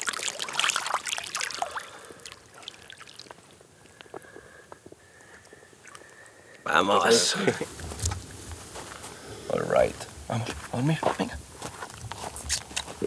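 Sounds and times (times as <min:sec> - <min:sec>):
water splashing and dripping: 0:00.0 - 0:04.3, 0:05.2 - 0:06.6.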